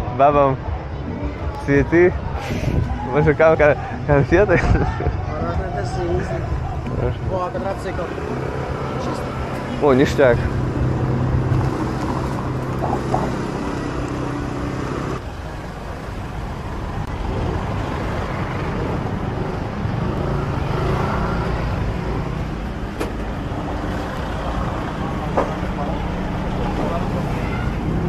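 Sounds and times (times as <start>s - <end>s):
road noise: 0.0s - 28.0s
vehicle engine hum: 2.2s - 28.0s.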